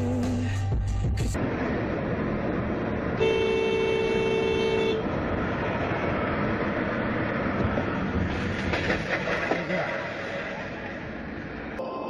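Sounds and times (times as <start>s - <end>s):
road and engine noise inside car: 0.0s - 12.0s
car horn blast: 3.2s - 5.1s.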